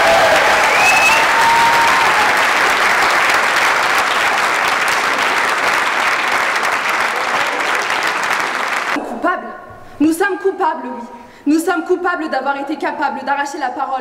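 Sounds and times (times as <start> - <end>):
audience applauding: 0.0 - 9.0
audience cheering: 0.0 - 9.0.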